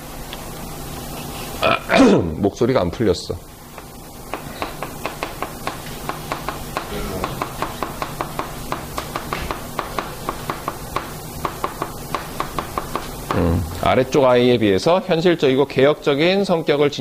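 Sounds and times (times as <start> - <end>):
chalk writing on blackboard: 3.7 - 13.1.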